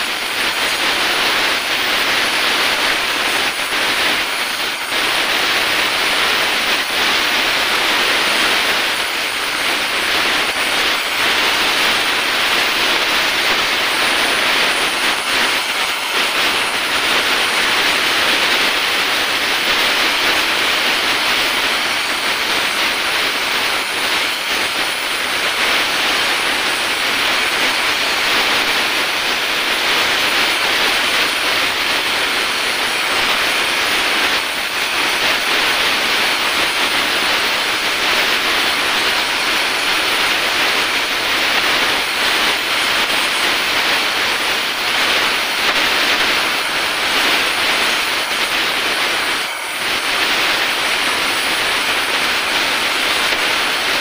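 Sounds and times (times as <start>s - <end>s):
welding torch hissing: 0.0s - 54.0s.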